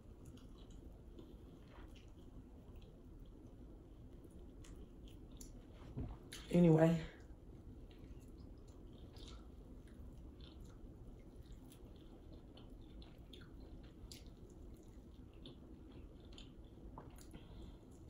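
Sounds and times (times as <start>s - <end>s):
person chewing: 0.0s - 6.4s, 7.3s - 18.0s
wet clicks and smacks: 7.8s - 18.0s.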